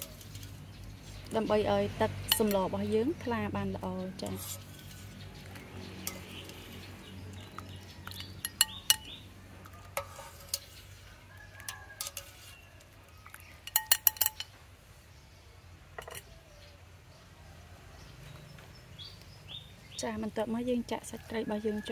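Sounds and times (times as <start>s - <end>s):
strainer clinking against metal pot: 0.0s - 0.6s, 2.3s - 3.0s, 4.2s - 11.0s, 11.6s - 12.6s, 13.5s - 14.5s, 16.0s - 16.3s.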